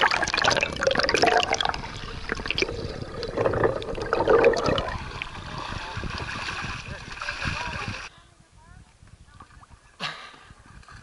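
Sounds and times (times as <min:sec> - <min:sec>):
underwater bubbling: 0:00.0 - 0:08.1
water sloshing and gurgling: 0:00.0 - 0:08.1.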